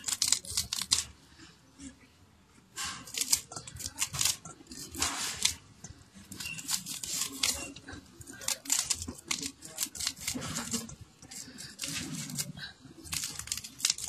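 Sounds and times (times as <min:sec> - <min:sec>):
metal utensil scraping maize cob: 0:06.2 - 0:14.0.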